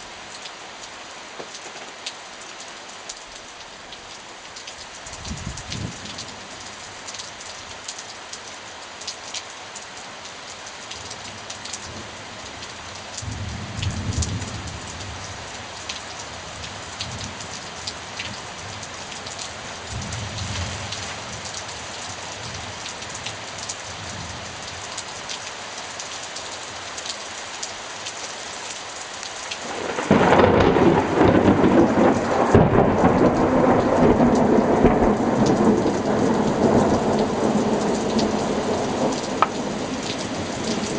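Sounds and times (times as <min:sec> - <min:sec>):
rain pattering: 0:00.0 - 0:40.9
loud thunder peal: 0:29.6 - 0:37.8
thunder rumbling: 0:29.6 - 0:40.9.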